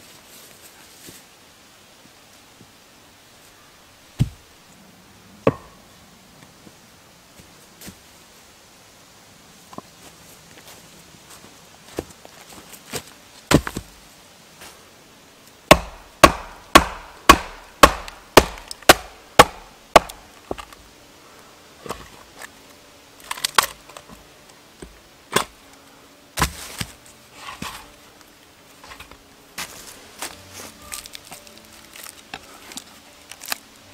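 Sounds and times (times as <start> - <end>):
axe chopping log: 5.5 - 5.7, 15.7 - 20.7, 26.4 - 26.9.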